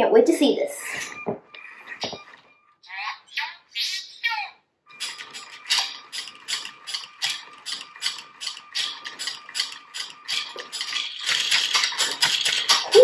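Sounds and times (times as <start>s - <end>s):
robot arms tapping a beat: 5.0s - 13.0s.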